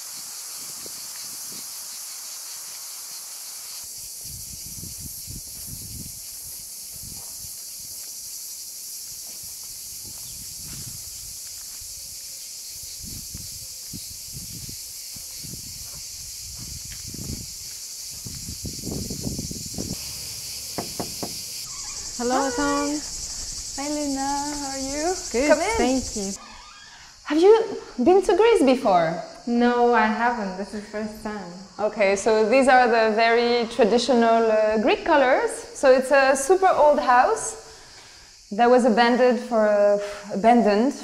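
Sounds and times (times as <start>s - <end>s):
cicadas chorus: 0.0s - 41.0s
low thuds: 18.2s - 22.3s.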